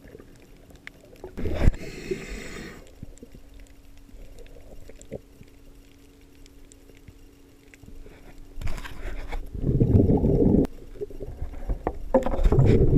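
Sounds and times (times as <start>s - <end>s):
regulator exhale bubbling: 1.2s - 3.3s, 9.5s - 11.9s
faint clicks: 2.8s - 9.0s.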